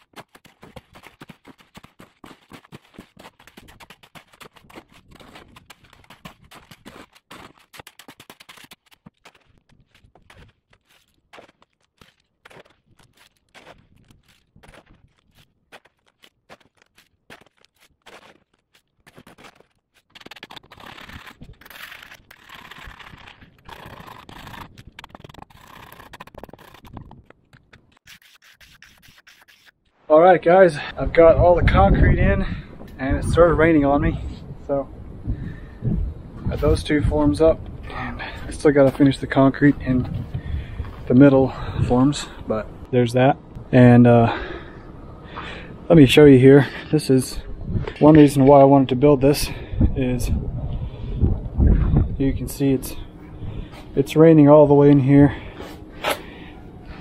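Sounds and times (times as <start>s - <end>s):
trowel scraping wet concrete: 0.0s - 13.8s, 19.0s - 29.7s.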